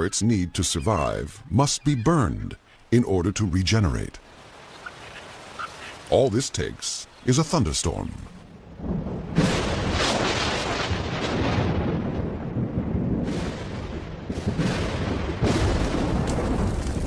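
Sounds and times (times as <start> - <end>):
thunder cracking and rumbling: 8.5 - 17.0.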